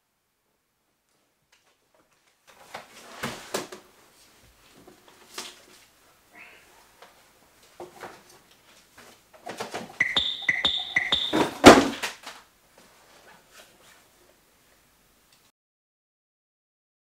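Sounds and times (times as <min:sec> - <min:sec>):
short high beeps: 0:10.0 - 0:11.8.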